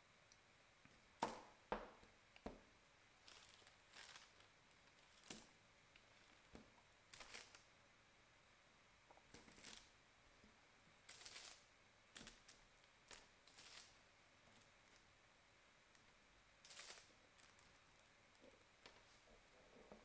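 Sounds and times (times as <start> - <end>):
biscuits rustling on baking paper: 3.2 - 7.7, 9.3 - 9.9, 11.0 - 15.1, 16.0 - 19.3.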